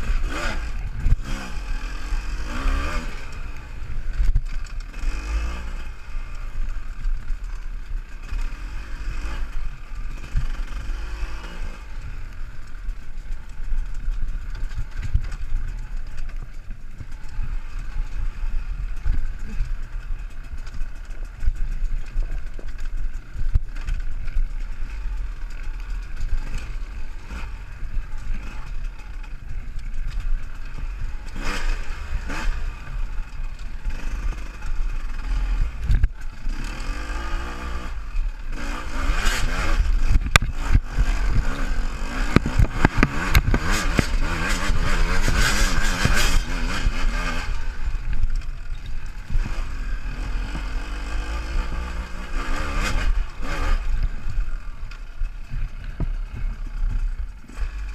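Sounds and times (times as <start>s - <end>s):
engine revving in bursts: 0.0s - 3.4s, 36.5s - 47.8s
bike clattering over rough ground: 0.0s - 57.9s
dirt bike engine rumbling: 0.0s - 57.9s.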